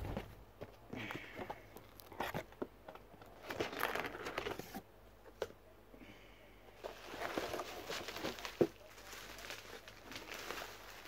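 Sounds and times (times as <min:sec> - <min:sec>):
hands rummaging in cardboard box: 0:03.4 - 0:04.8, 0:06.8 - 0:11.0
plastic packing crinkling: 0:03.4 - 0:04.8, 0:06.8 - 0:11.0.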